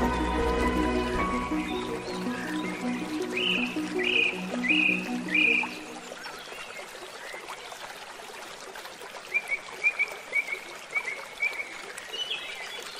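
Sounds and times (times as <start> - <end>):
steady outdoor hiss: 0.0 - 7.6.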